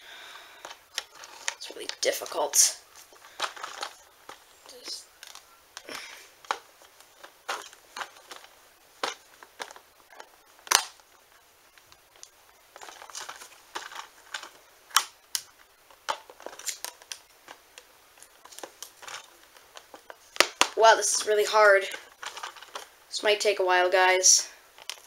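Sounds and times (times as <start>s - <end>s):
toy packaging clicks and snaps: 3.2s - 11.0s, 11.7s - 21.3s, 21.9s - 22.9s, 24.8s - 25.0s.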